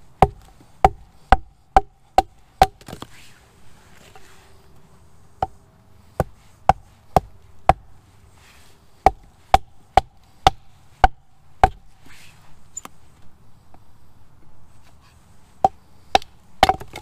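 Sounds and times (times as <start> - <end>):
hatchet chopping wood: 0.2 - 3.1, 5.4 - 7.9, 9.0 - 11.9, 15.6 - 17.0.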